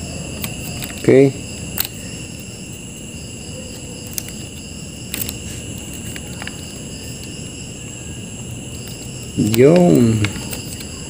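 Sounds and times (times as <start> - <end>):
fingers clicking ribbon cable: 0.3 - 1.1, 1.8 - 2.4, 3.7 - 7.4, 8.4 - 11.0.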